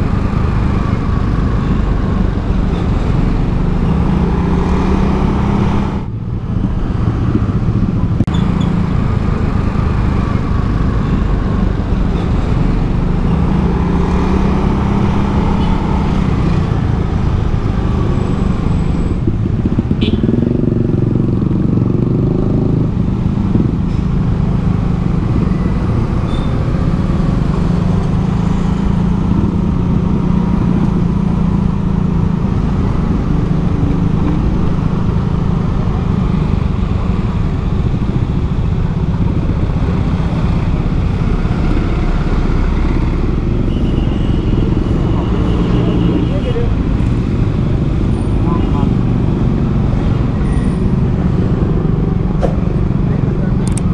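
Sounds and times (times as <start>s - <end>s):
traffic noise: 0.0s - 53.9s.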